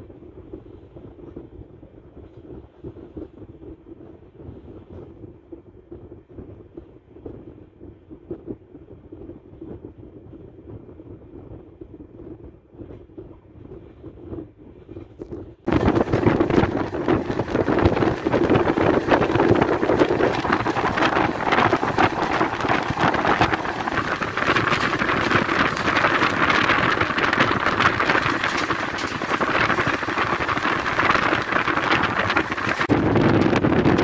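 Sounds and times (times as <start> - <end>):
wind buffeting microphone: 0.0 - 34.0
train wheels rushing on rails: 15.7 - 33.6.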